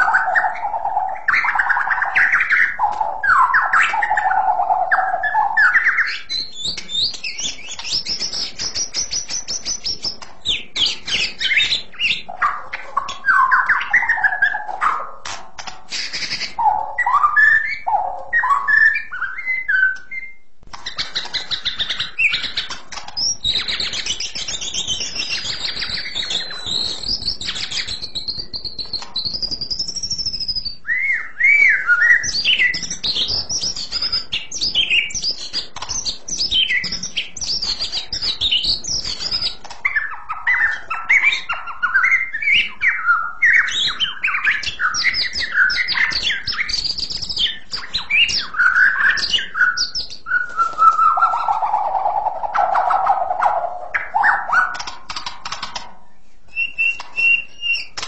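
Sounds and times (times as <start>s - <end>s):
bird singing whistled song: 0.0s - 15.2s, 15.9s - 54.9s, 56.5s - 58.0s.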